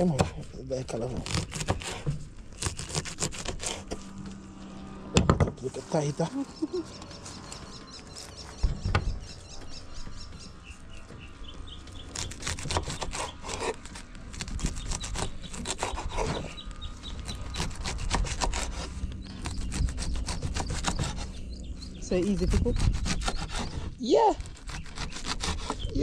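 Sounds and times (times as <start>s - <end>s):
knife scraping and cutting: 0.0s - 4.2s, 12.1s - 16.6s, 17.2s - 21.4s, 22.4s - 26.0s
faint bird chirps: 5.9s - 13.5s.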